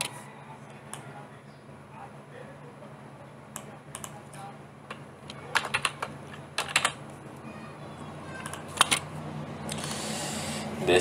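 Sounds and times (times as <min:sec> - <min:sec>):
keyboard keys clicking: 0:04.9 - 0:07.0, 0:08.4 - 0:09.0.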